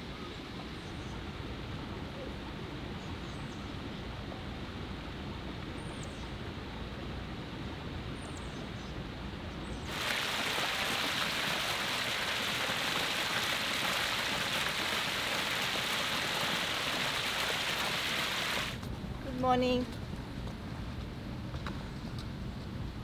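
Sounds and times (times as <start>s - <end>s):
fountain jets splashing into pool: 9.9s - 18.8s.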